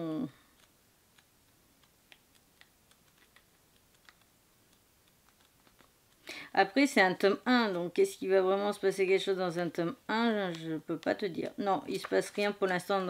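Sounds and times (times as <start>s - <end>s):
book pages being leafed through: 0.5s - 5.9s, 10.3s - 13.0s.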